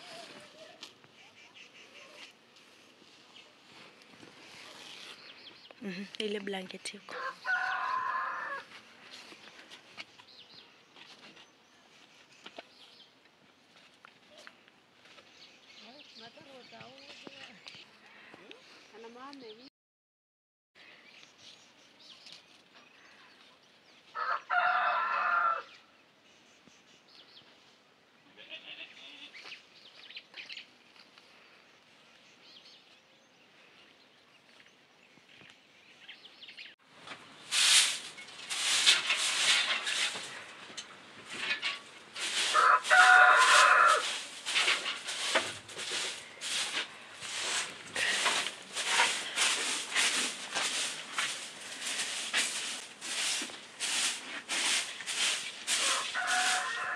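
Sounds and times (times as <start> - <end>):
rough scraping noises: 0.0 - 1.0, 1.8 - 6.4, 36.9 - 56.9
rooster crowing: 7.1 - 8.7, 24.2 - 25.8, 42.4 - 44.2, 55.8 - 56.9.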